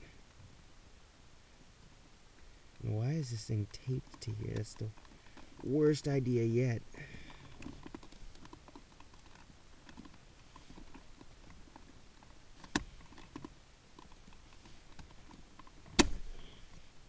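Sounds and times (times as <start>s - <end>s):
hands handling cables and plastic: 3.3s - 16.9s
sharp plastic click: 15.9s - 16.3s.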